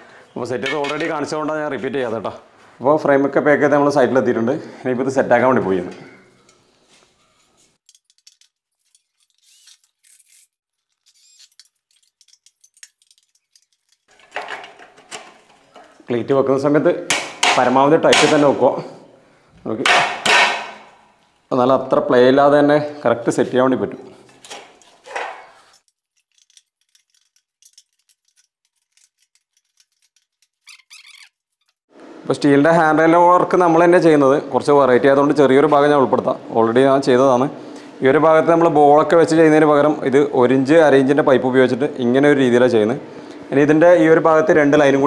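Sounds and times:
cordless screwdriver whirring: 9.2s - 11.6s.

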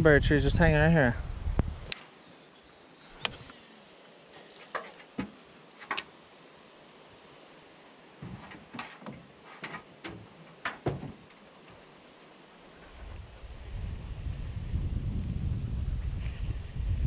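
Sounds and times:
sharp clicks and knocks: 8.2s - 11.8s.

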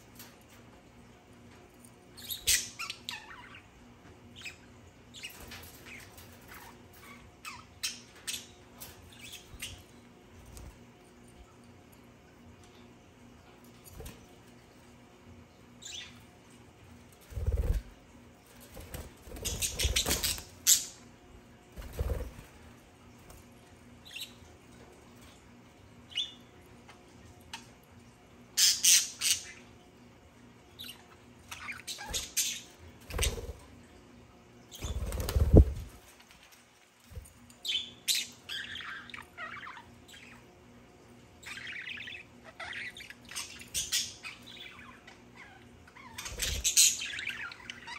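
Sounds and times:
birds chirping and chattering: 0.0s - 36.4s, 37.1s - 47.9s
bird wings flapping: 34.8s - 36.0s.

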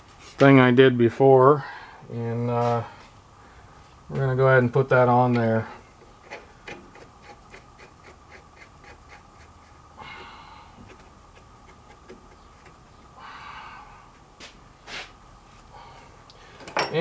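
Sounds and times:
short breaths: 10.0s - 10.8s, 13.2s - 14.2s, 14.8s - 16.7s.

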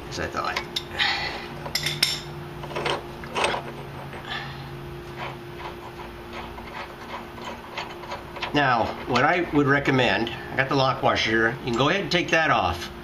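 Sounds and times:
metal clinks and taps: 1.7s - 2.9s.

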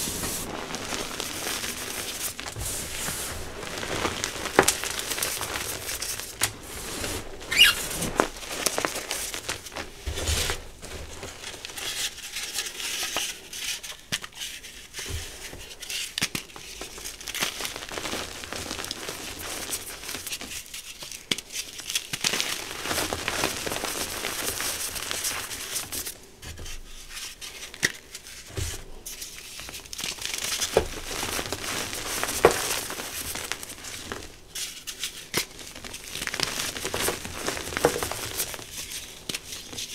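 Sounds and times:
chalk crunching and rustling: 0.0s - 39.9s.

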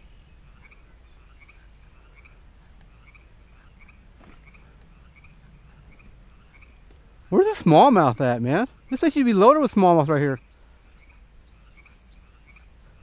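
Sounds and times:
frogs chirping: 0.0s - 13.0s
high-pitched insect hum: 0.0s - 13.0s.

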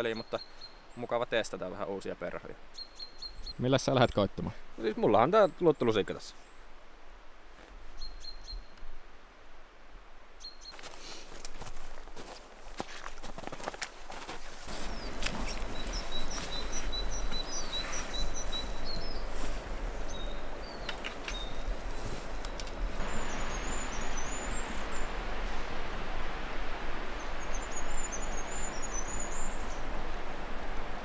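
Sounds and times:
small birds singing: 0.0s - 6.7s, 7.9s - 8.9s, 10.4s - 11.0s, 14.7s - 25.8s, 27.1s - 30.0s
river rapids rushing: 14.6s - 31.0s.

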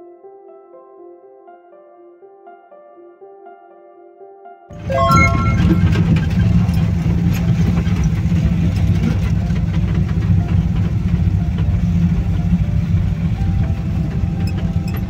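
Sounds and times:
van engine humming inside cab: 5.9s - 15.0s.

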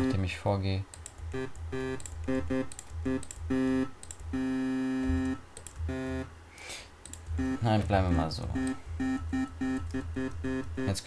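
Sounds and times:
computer keys clicking: 0.9s - 4.4s, 5.0s - 5.9s, 7.0s - 11.0s.

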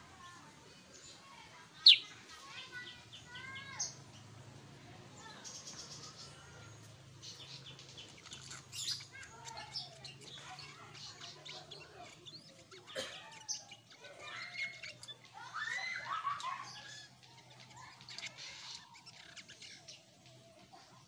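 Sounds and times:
bird chirping and whistling: 1.8s - 2.1s.

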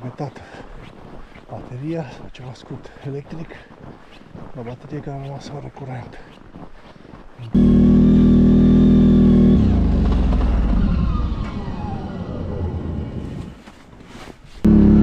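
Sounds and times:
atv engine running: 7.5s - 13.4s, 14.7s - 15.0s.

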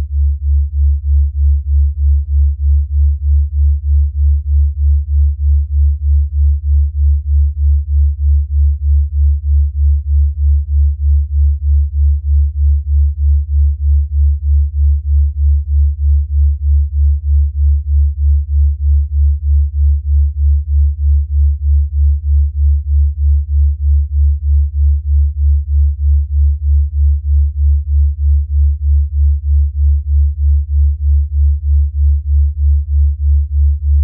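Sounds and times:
pulsing low synth tone: 1.5s - 34.0s.

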